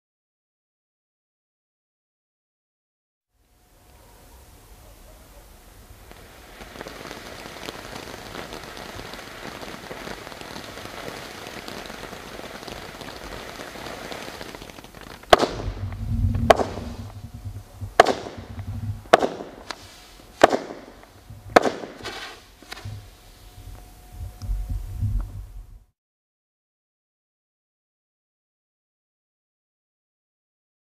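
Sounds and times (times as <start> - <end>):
firework crackling hiss: 3.4 - 25.9
loud firework bangs: 5.8 - 23.2.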